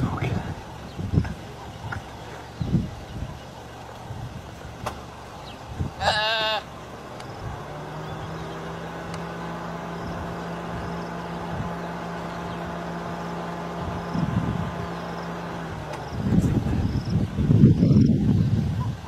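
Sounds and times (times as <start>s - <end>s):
vehicle engine idling: 0.0s - 19.0s
impala distress bleat: 6.0s - 6.7s.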